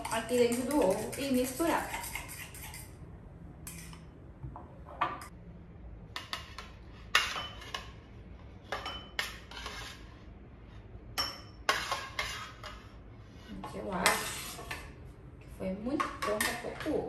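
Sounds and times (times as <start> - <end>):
knife scraping on ceramic plate: 0.0 - 3.0, 6.2 - 8.0, 8.7 - 10.2, 11.2 - 14.9.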